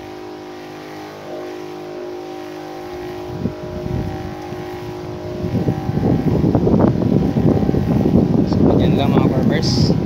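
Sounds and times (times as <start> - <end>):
crop sprayer motor humming: 0.0 - 10.0
low rumbling bursts on microphone: 2.8 - 10.0.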